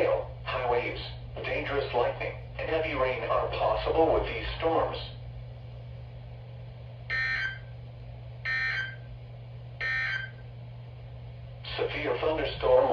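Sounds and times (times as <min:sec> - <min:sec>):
steady low hum: 0:00.0 - 0:12.9
digital data tone bursts: 0:07.1 - 0:07.7, 0:08.5 - 0:09.0, 0:09.8 - 0:10.4.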